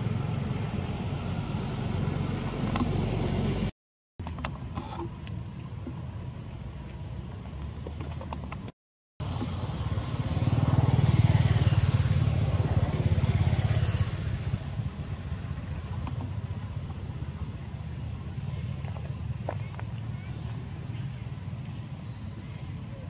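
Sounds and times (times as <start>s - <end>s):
vehicle engine running: 0.0s - 3.7s, 9.2s - 23.0s.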